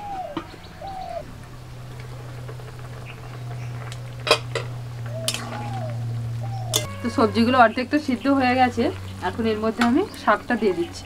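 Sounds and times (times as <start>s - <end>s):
steady low hum: 0.0s - 11.0s
metal lid clanking against a wok: 4.3s - 5.8s, 6.7s - 7.0s.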